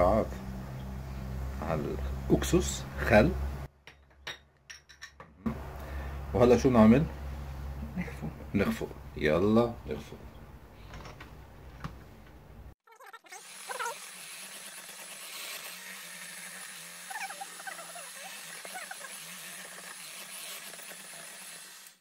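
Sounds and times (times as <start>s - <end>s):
electric hand mixer whirring: 13.3s - 22.0s.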